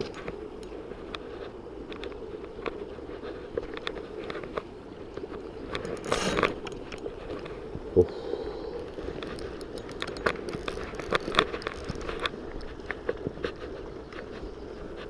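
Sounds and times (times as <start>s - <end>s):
rustling: 0.0s - 15.0s
fishing reel clicks and knocks: 8.9s - 12.4s.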